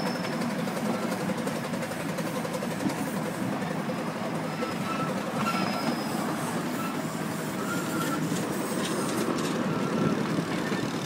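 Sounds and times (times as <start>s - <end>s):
miniature train rolling on track: 0.0s - 11.0s
thin wheel squeals: 4.6s - 11.0s
wheel clicks over rail joints: 8.2s - 11.0s.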